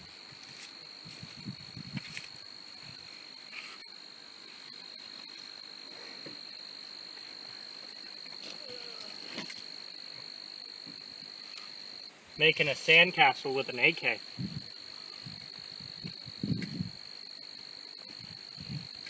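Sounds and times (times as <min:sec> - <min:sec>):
high-pitched insect drone: 0:00.0 - 0:19.0
hands scraping dry dirt: 0:00.4 - 0:03.9.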